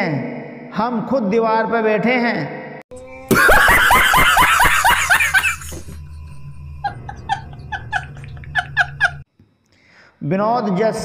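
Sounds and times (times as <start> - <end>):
man laughing: 3.3 - 9.2.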